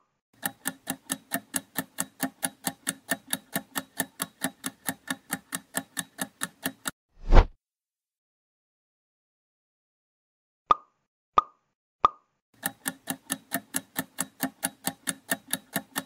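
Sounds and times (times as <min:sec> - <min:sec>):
timer ticking: 0:00.4 - 0:07.0, 0:12.6 - 0:16.0.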